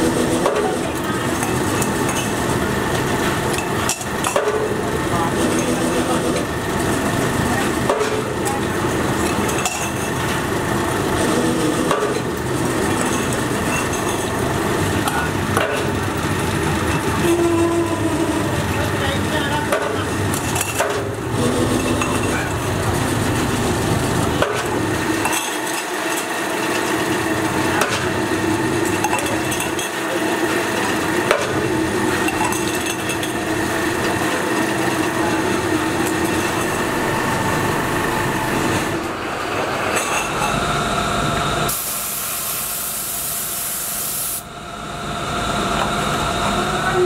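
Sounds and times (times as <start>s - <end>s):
metal press humming: 0.0s - 43.5s
paint spray gun hissing: 41.7s - 44.4s.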